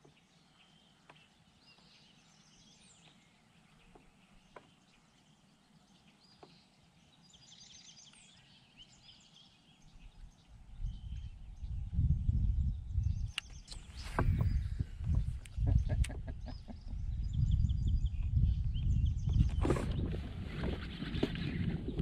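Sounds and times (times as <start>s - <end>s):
songbirds chirping and trilling: 0.0s - 22.0s
soft clicks: 13.3s - 14.4s.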